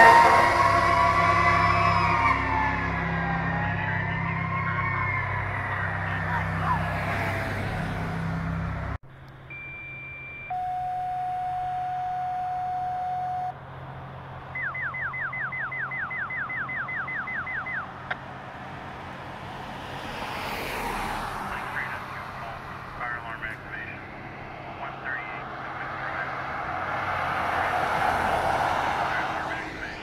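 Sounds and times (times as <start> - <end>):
car passing: 0.0 - 10.8, 13.0 - 30.0
rapid falling beeps: 9.5 - 13.5, 14.6 - 17.9
two-tone radio paging tones: 9.5 - 13.6, 14.6 - 17.9.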